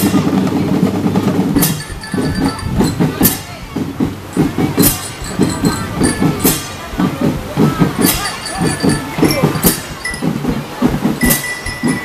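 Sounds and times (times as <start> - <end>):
marching drums: 0.0 - 12.0
bell lyres ringing: 1.6 - 3.6, 4.3 - 7.1, 8.0 - 10.5, 11.2 - 12.0.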